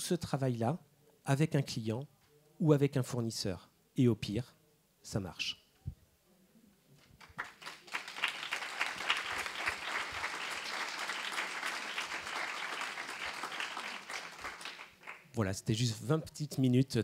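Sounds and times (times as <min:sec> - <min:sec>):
audience applause: 0:07.2 - 0:15.2.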